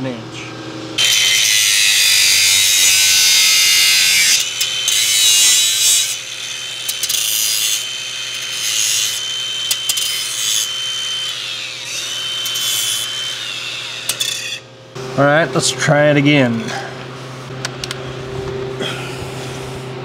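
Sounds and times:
power tool cutting bolt: 1.0 - 14.7.

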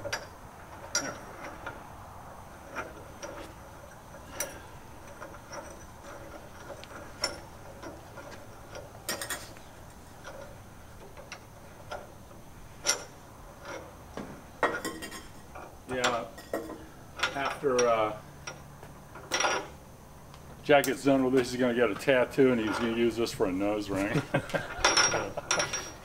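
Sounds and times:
metal clicks and clinks: 0.0 - 1.5, 24.7 - 26.0.

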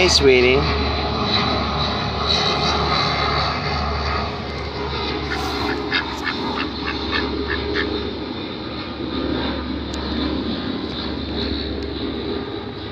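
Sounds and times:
steady low rumble: 0.0 - 12.9
ducks quacking: 5.2 - 8.0.

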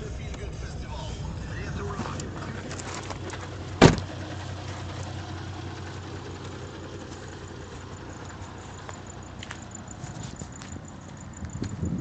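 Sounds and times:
diesel engine idling: 0.0 - 12.0
sharp thump: 3.8 - 4.1.

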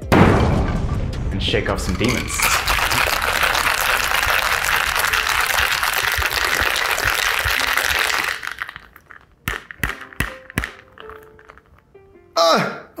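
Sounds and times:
ice rattling in cocktail shaker: 1.9 - 11.8.

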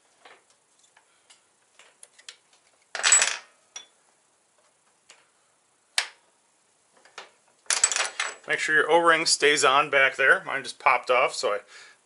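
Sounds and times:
metal parts clicking and tapping: 1.3 - 4.0, 7.0 - 8.5.

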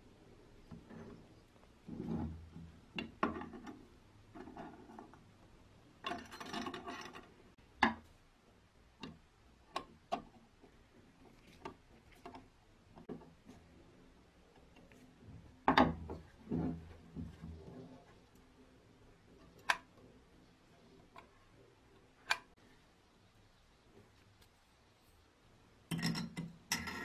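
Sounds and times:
metal parts clicking and tapping: 6.0 - 8.0, 25.9 - 27.0.

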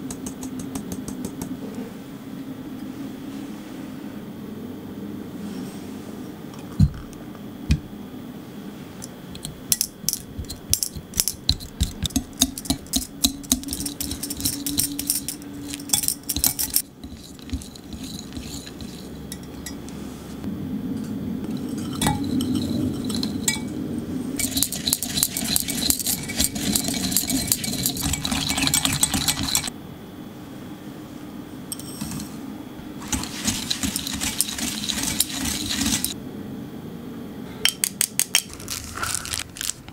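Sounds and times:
whisk clicking against glass: 24.4 - 29.7.

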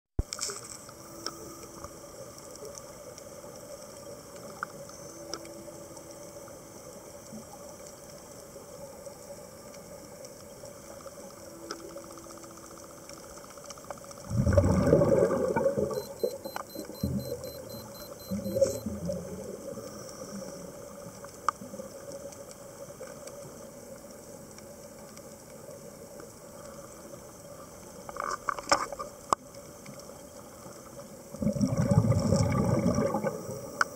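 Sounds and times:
air bubbles rushing: 14.2 - 19.8, 31.3 - 33.7
underwater hiss: 19.3 - 21.3.

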